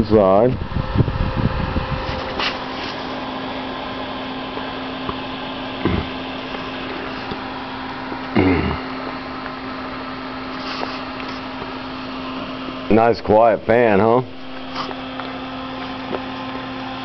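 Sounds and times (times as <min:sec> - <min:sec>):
cooling fan humming: 0:00.0 - 0:17.0.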